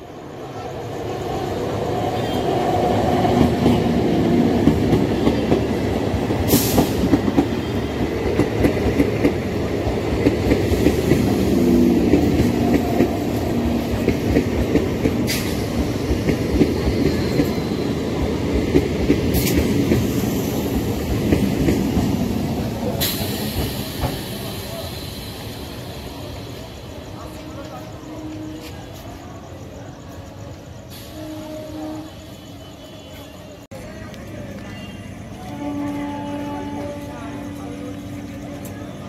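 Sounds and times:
train passing: 0:00.0 - 0:39.0
sharp high hisses: 0:22.7 - 0:27.1.

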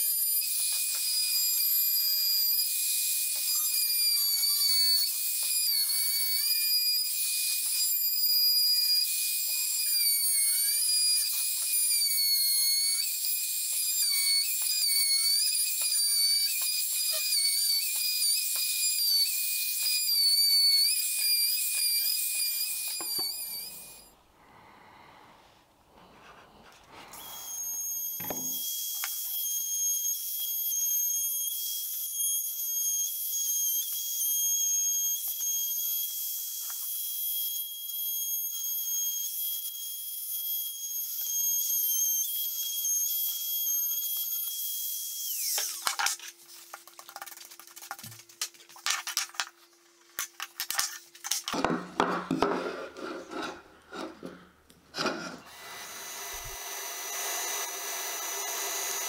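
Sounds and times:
trim router whining: 0:00.0 - 0:24.1, 0:27.0 - 0:46.1, 0:55.0 - 0:59.0.

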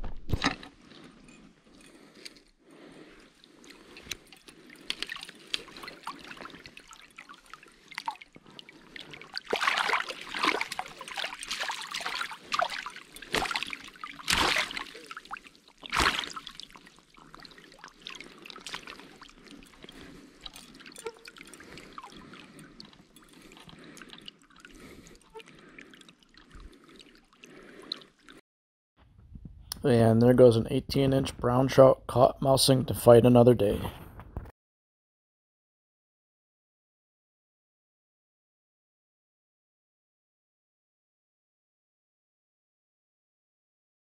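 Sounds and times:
water splashing and dripping: 0:02.8 - 0:28.4.

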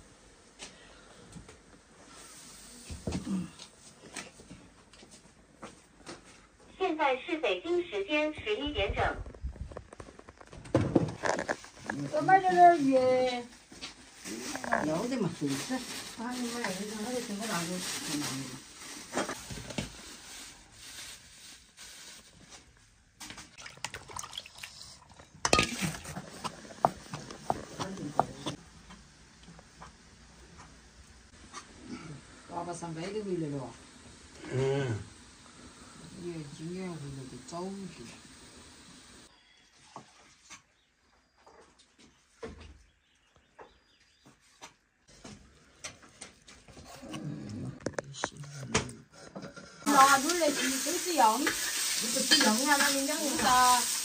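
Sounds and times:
plastic bag rustling: 0:11.2 - 0:22.8
water dripping: 0:23.6 - 0:26.0.

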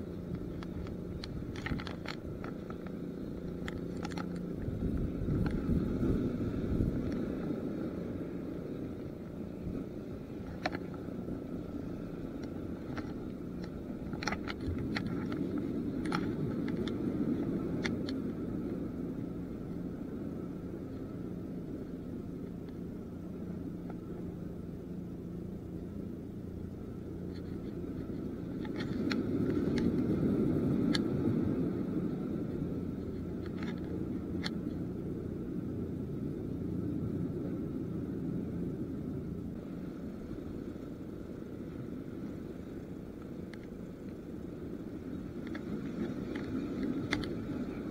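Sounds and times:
sea surf on concrete: 0:00.0 - 0:47.9
wind on microphone: 0:00.0 - 0:47.9
faint clicks: 0:42.2 - 0:44.4, 0:45.0 - 0:47.9.

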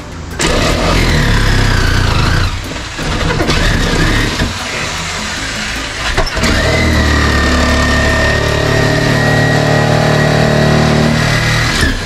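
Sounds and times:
electric power tool motor whining: 0:00.4 - 0:12.0.

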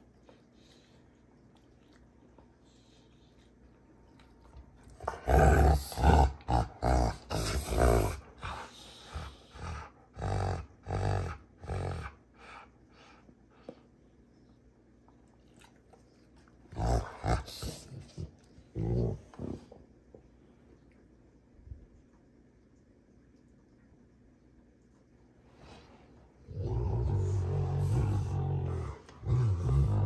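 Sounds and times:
dogs growling: 0:04.8 - 0:12.6, 0:16.7 - 0:19.8, 0:26.4 - 0:30.0.

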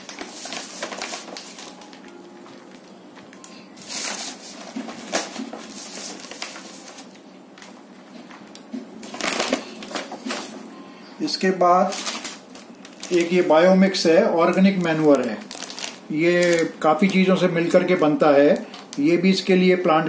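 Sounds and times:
bag rustling: 0:14.7 - 0:16.8.

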